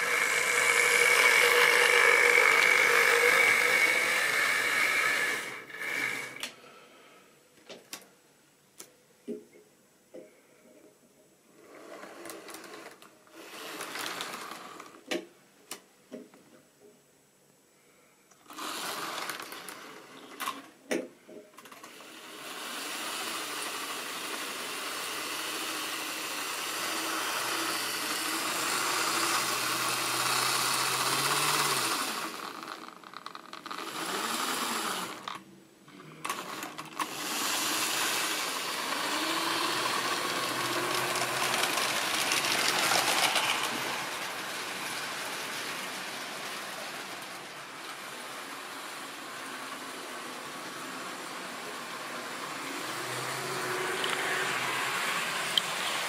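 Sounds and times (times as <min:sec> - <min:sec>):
wheels rattling over rails: 0:00.0 - 0:06.4, 0:36.2 - 0:56.0
model train motor whirring: 0:00.0 - 0:06.6, 0:11.6 - 0:15.0, 0:18.4 - 0:20.7, 0:21.6 - 0:56.0.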